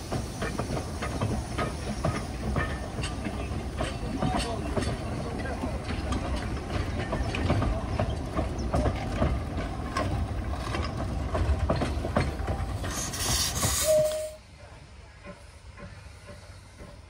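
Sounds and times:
steam hiss: 0.0 - 8.8, 12.0 - 17.0
train rolling past: 0.0 - 17.0
wheels clicking and clanking on rails: 0.0 - 17.0
brief high tone: 13.9 - 14.4.

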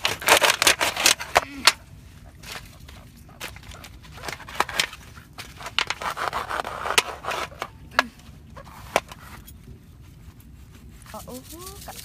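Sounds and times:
knife scraping and cutting fish: 5.4 - 7.7.

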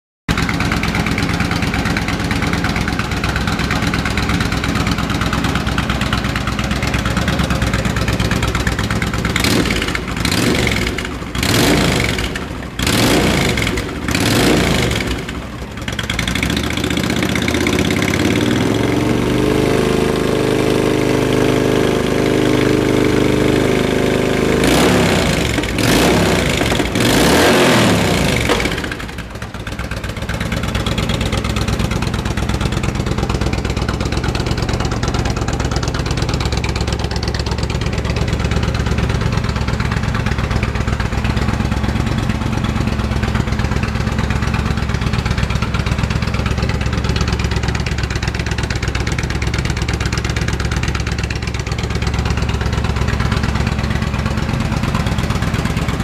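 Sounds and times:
motorcycle engine idling and revving: 0.3 - 56.0.

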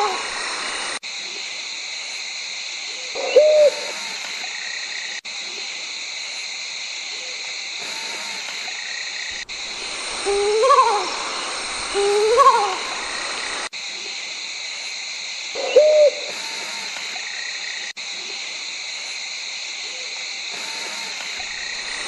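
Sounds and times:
owl hooting: 0.0 - 1.0, 2.9 - 5.0, 7.1 - 13.7, 15.5 - 17.0
high-pitched hiss: 0.0 - 22.0.

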